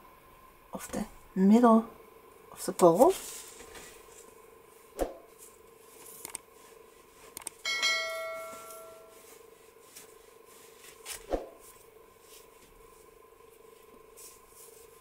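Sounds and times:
soft clicks: 0:06.2 - 0:06.4, 0:07.4 - 0:07.6
bell-like notification chime: 0:07.7 - 0:09.2.

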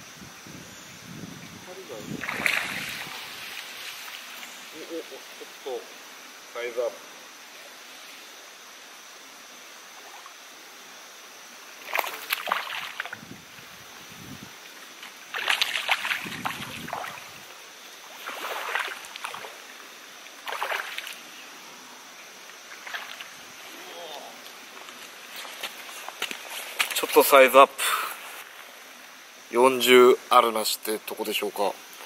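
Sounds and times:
fish splashing in water: 0:02.2 - 0:04.2, 0:11.8 - 0:13.2, 0:15.3 - 0:17.4, 0:18.1 - 0:19.7, 0:20.4 - 0:21.2.

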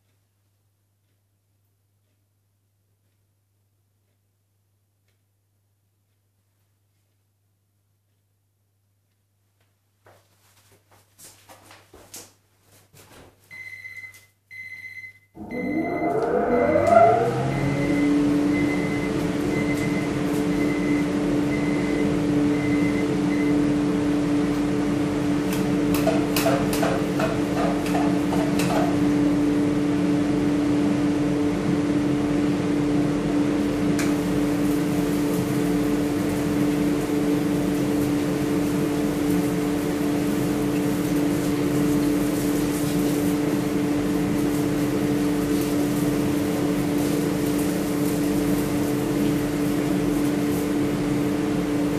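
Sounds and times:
fan motor humming: 0:15.4 - 0:51.9.

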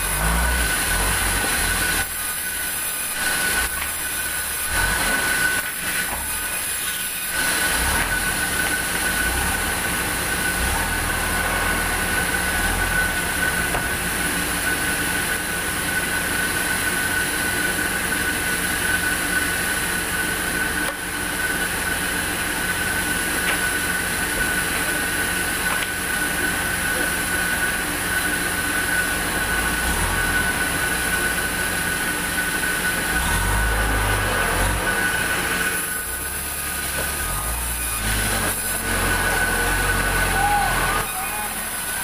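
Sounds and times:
band saw sawing timber: 0:00.0 - 0:14.3, 0:25.7 - 0:42.0.

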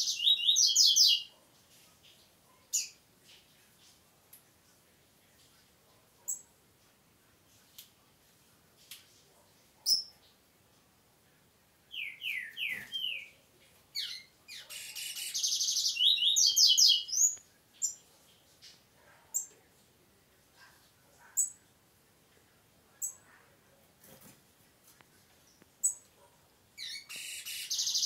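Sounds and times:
bird chirps: 0:00.0 - 0:01.3, 0:11.9 - 0:13.4, 0:14.0 - 0:18.8, 0:26.8 - 0:28.0
bird singing: 0:00.0 - 0:01.3, 0:11.9 - 0:13.3, 0:14.0 - 0:18.0, 0:26.8 - 0:28.0.

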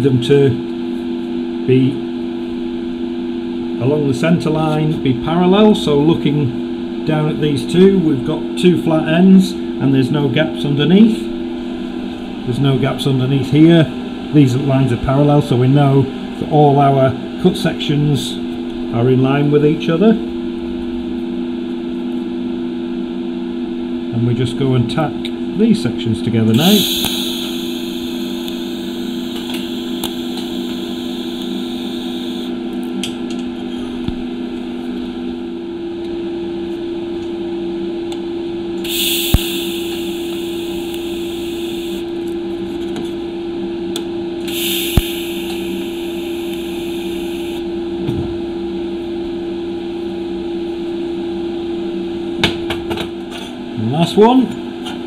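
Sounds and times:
steady low hum: 0:00.0 - 0:54.8
sharp click: 0:26.6 - 0:27.7, 0:39.2 - 0:41.1
welding arc hissing: 0:26.6 - 0:32.5, 0:38.8 - 0:42.2, 0:44.4 - 0:47.7.

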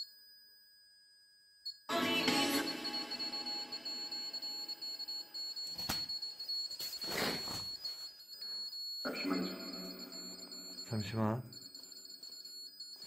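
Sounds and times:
bursts of static: 0:09.1 - 0:11.4
electronic drone with high whine: 0:09.1 - 0:11.9.

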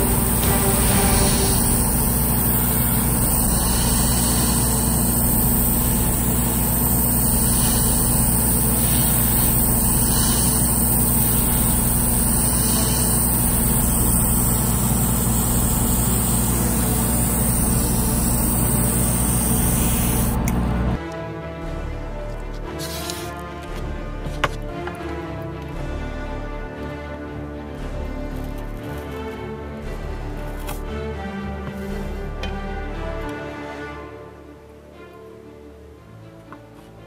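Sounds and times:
airbrush spraying hiss: 0:00.0 - 0:20.5, 0:22.8 - 0:23.4
extractor fan rushing and hum: 0:00.0 - 0:21.0.

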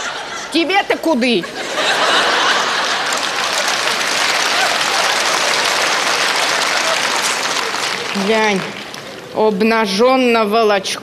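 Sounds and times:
audience laughing: 0:00.0 - 0:08.2
audience clapping: 0:01.9 - 0:09.4.

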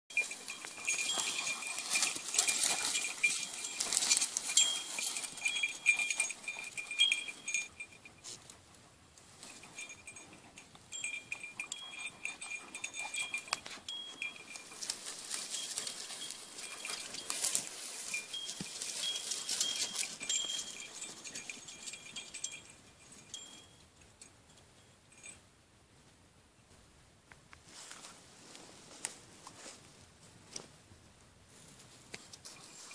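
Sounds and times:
dogs running through dry grass: 0:00.1 - 0:07.9, 0:10.9 - 0:23.6
animal bells clanking and tinkling: 0:00.1 - 0:08.6, 0:09.3 - 0:25.4, 0:32.4 - 0:32.9.

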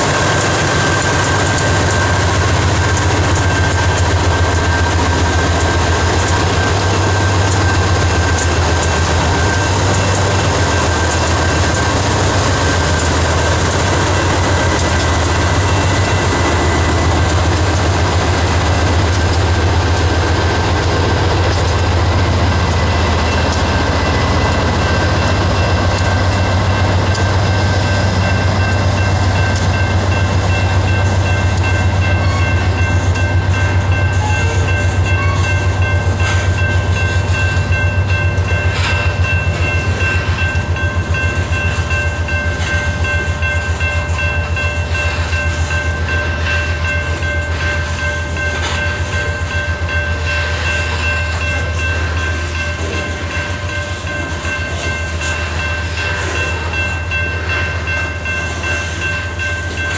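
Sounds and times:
wheels clicking over rail joints: 0:00.0 - 0:27.5
freight train rumbling past: 0:00.0 - 0:59.9.

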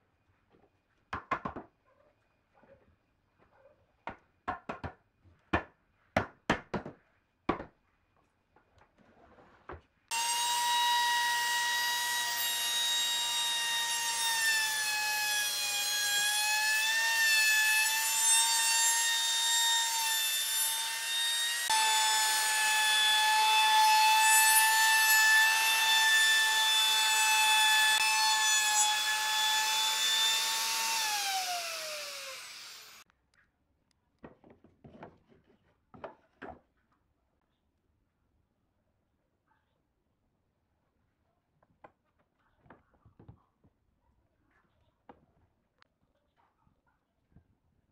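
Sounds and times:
router whining and cutting wood: 0:10.1 - 0:33.0
motor spinning down: 0:29.7 - 0:33.0.

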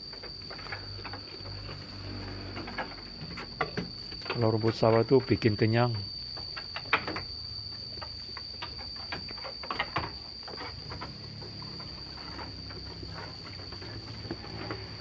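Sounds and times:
sheep crunching straw: 0:10.5 - 0:15.0.

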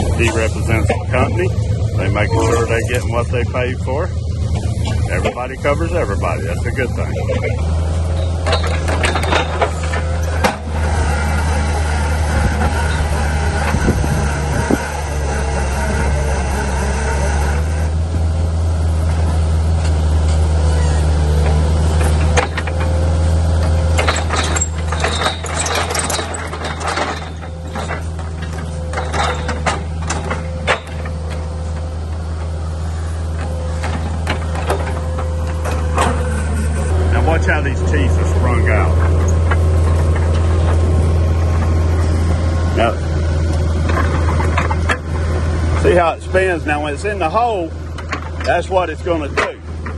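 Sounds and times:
diesel engine running: 0:00.0 - 0:49.9
sharp metal clanks and knocks: 0:04.5 - 0:11.5, 0:21.4 - 0:23.0, 0:23.6 - 0:32.5, 0:33.3 - 0:36.4, 0:43.5 - 0:45.1, 0:47.0 - 0:49.9.

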